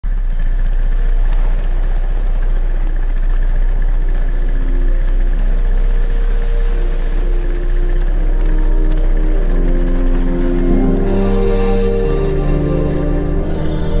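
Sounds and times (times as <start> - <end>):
engine chugging steadily: 0.0 - 14.0.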